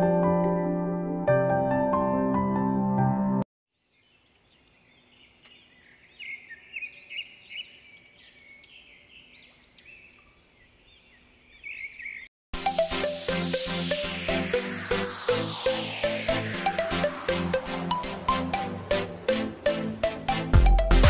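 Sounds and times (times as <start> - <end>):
soft instrumental music: 0.0 - 3.4, 12.6 - 21.0
small birds chirping: 3.7 - 12.3.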